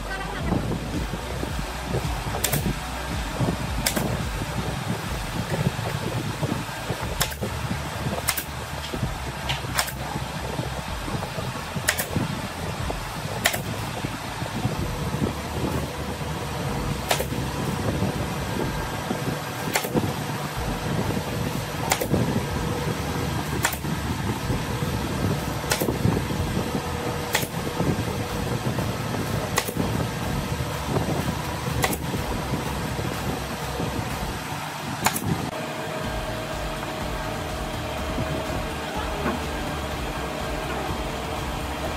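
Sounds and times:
mechanical hum: 0.0s - 41.9s
pneumatic nail gun shots: 2.3s - 2.8s, 3.4s - 4.2s, 5.4s - 10.6s, 11.8s - 12.4s, 13.2s - 14.1s, 17.0s - 18.0s, 19.2s - 20.2s, 20.9s - 22.4s, 23.5s - 24.3s, 25.2s - 26.2s, 27.2s - 27.9s, 29.4s - 30.0s, 30.9s - 32.2s, 35.0s - 35.4s.

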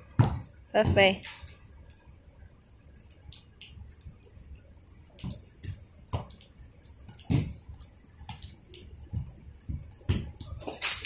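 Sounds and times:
rain dripping: 0.0s - 11.0s
loud drip thuds: 2.9s - 11.0s.

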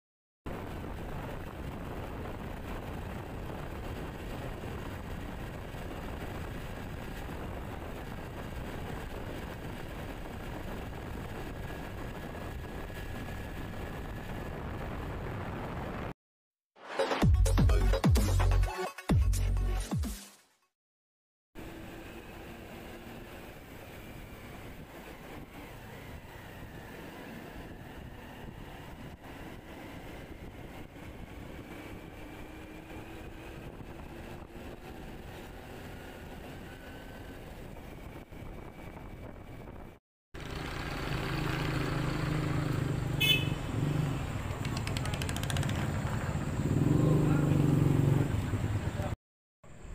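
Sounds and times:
wind on microphone: 0.5s - 16.1s, 24.4s - 40.0s
road noise: 0.5s - 16.2s, 21.6s - 49.9s
motorbike engine drone: 21.6s - 49.9s.

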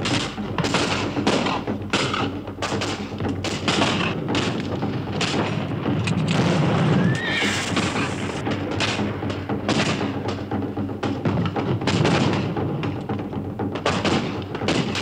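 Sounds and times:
musket shots: 0.0s - 7.0s, 7.6s - 10.4s, 11.5s - 12.7s, 13.8s - 15.0s
horse whinnying: 6.7s - 8.4s.

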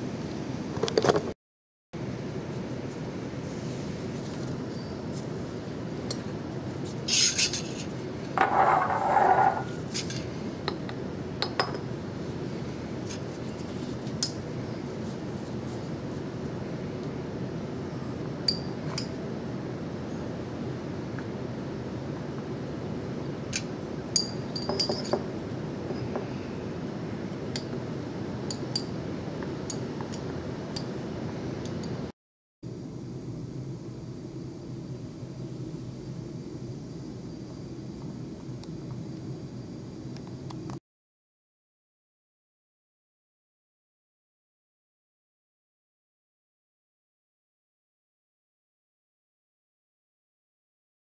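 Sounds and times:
glass clinking: 11.4s - 11.9s, 24.2s - 25.2s.

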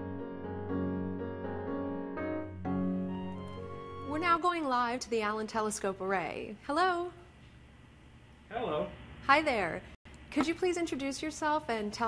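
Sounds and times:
slow sustained instrumental chords: 0.0s - 4.2s.

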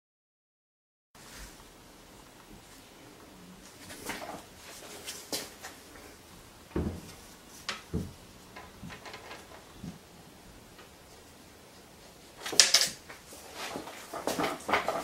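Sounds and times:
wooden knocks and clunks: 6.7s - 10.0s, 12.5s - 15.0s.

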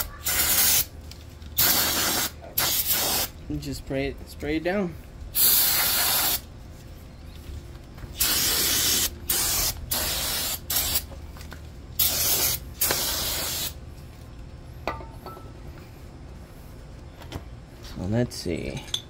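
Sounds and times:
aerosol spray can hissing: 1.6s - 3.3s, 5.4s - 6.4s, 8.2s - 11.0s, 12.0s - 13.8s.

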